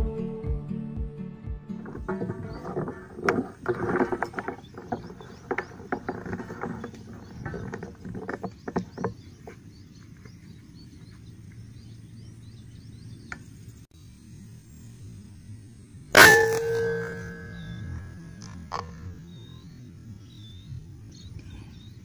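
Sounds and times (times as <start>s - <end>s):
faint outdoor hum: 0.0s - 22.0s.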